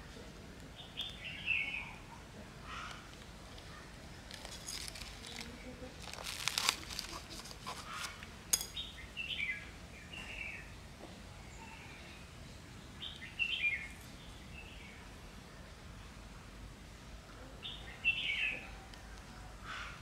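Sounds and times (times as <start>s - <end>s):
small birds chirping: 0.1s - 15.8s
rustling and scraping plants: 2.3s - 8.9s.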